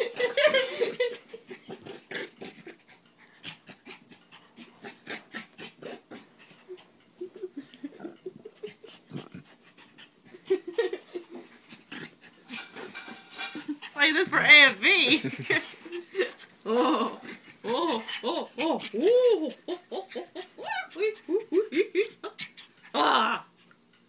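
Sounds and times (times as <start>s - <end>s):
puppy play-biting clicks and rustles: 0.1s - 16.6s.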